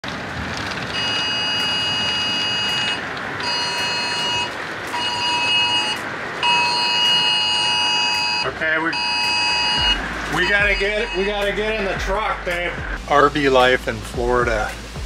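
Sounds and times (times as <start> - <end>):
heavy rain and wind: 0.0 - 15.0
emergency alert tone beeping: 1.0 - 12.2.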